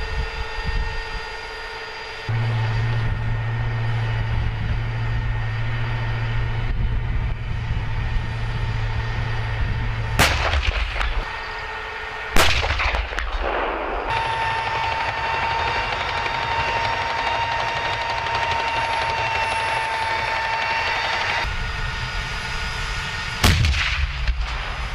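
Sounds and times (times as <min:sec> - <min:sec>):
tank engines idling: 0:00.0 - 0:24.9
sharp bangs: 0:10.0 - 0:21.5, 0:23.4 - 0:24.9.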